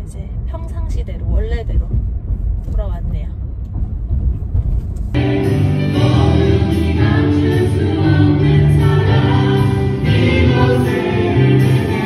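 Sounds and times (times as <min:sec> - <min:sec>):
gospel choir singing: 0:05.2 - 0:12.0.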